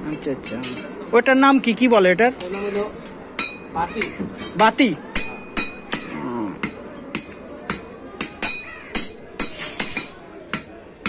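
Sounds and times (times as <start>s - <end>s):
hammer striking hot iron on anvil: 3.4s - 10.8s.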